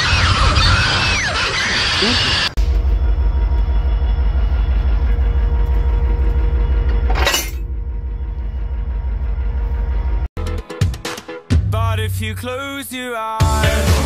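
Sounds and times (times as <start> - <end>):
diesel locomotive engine idling: 2.6 - 10.3.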